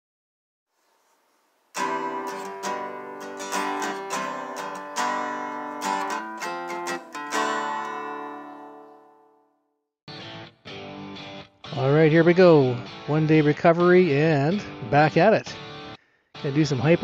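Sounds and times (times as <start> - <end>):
acoustic guitar music: 0.8 - 9.5, 10.1 - 17.0.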